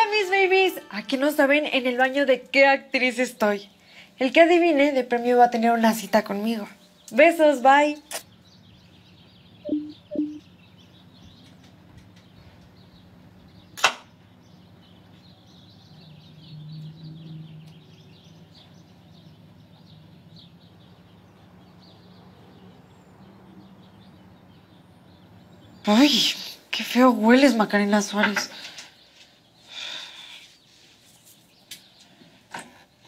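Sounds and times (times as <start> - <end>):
faint bird chirping: 0.0 - 33.0
sharp click: 13.8 - 14.1.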